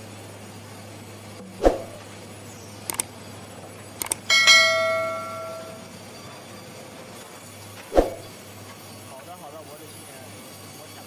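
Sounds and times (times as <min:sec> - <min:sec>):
low machine hum: 0:00.0 - 0:06.3
quick clicks: 0:02.9 - 0:03.1, 0:04.0 - 0:04.3
notification bell ding: 0:04.3 - 0:05.8.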